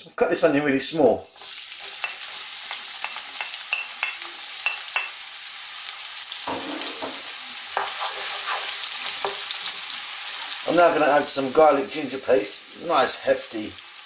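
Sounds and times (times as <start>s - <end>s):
onion sizzling in a frying pan: 0.8s - 14.0s
wooden spoon scraping and knocking: 6.5s - 9.8s.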